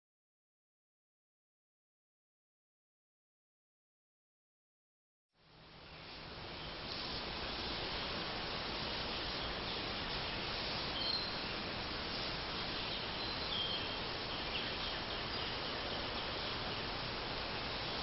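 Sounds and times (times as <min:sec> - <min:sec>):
steady background hiss: 0:05.4 - 0:18.0
high bird chirps: 0:10.8 - 0:11.6, 0:12.7 - 0:16.6.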